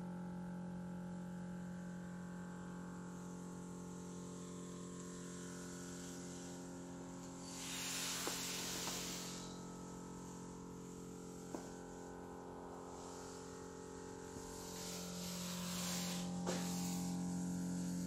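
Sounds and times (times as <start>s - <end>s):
electrical hum and buzz: 0.0s - 18.0s
rush of hiss: 7.4s - 9.6s, 14.4s - 17.3s.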